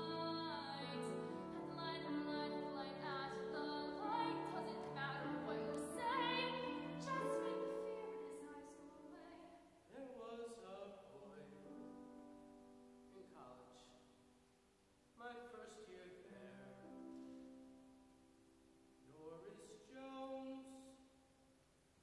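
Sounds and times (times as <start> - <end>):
piano accompaniment: 0.0 - 8.8.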